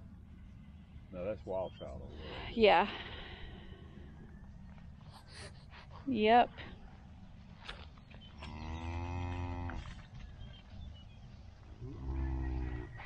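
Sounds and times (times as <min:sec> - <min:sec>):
cattle mooing: 0:08.4 - 0:09.9, 0:11.8 - 0:13.0.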